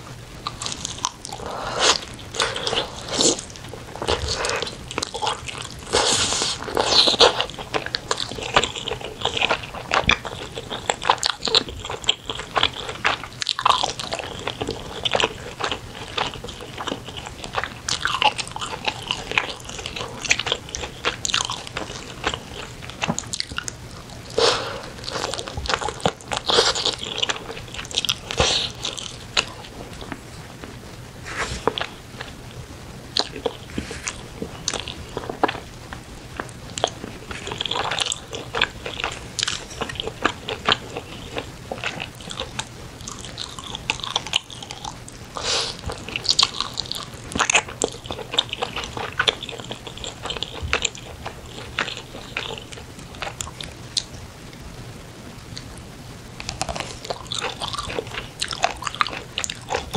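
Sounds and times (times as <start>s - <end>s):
wet chewing and biting: 33.2s - 54.1s, 56.4s - 59.9s.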